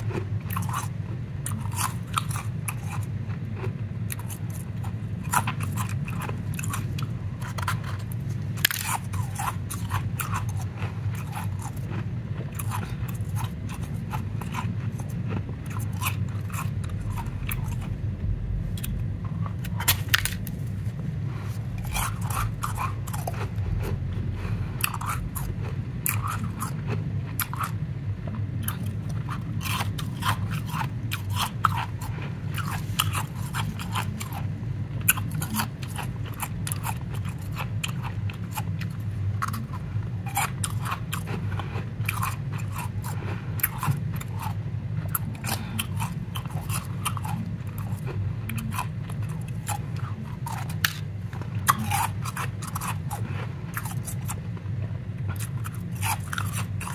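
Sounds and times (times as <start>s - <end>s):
steady low hum: 0.0s - 56.9s.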